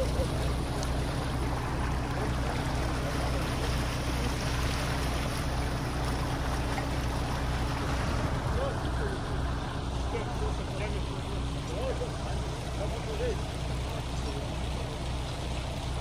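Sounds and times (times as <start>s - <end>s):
low engine hum: 0.0s - 16.0s
water rushing through a ditch: 0.0s - 16.0s.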